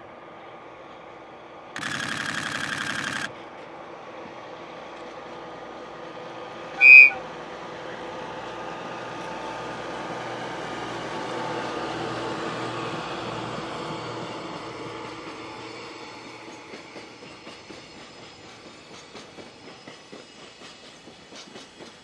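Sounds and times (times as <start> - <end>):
train wheels rumbling on rails: 0.0 - 22.0
high locomotive horn toot: 6.8 - 7.3.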